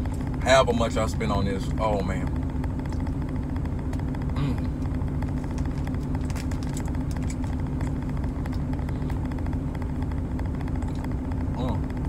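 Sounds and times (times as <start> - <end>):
truck engine idling: 0.0 - 12.0
chewing clicks: 6.2 - 8.6.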